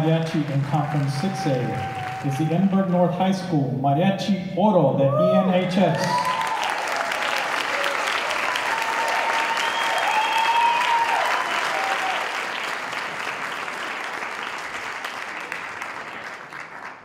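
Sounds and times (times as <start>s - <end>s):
audience applauding and cheering: 0.0s - 3.5s, 5.2s - 17.0s
drawn-out shout: 6.1s - 12.3s.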